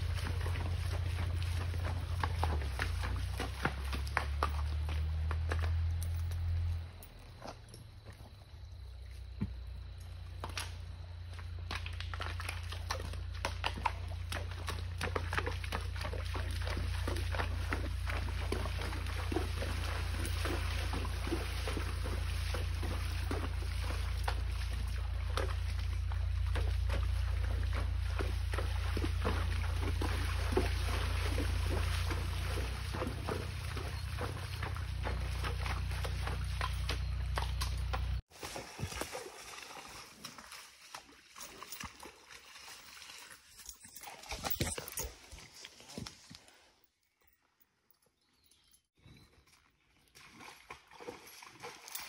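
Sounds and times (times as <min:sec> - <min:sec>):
hooves clacking on stones: 0:00.0 - 0:08.4, 0:09.3 - 0:46.4, 0:50.9 - 0:52.0
hooves splashing in shallow water: 0:00.0 - 0:46.7, 0:48.5 - 0:52.0
low steady rumble: 0:12.7 - 0:38.2.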